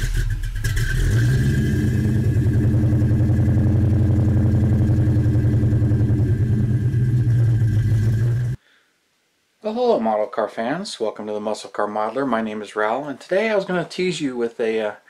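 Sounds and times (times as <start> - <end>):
car engine revving and idling: 0.0 - 8.6.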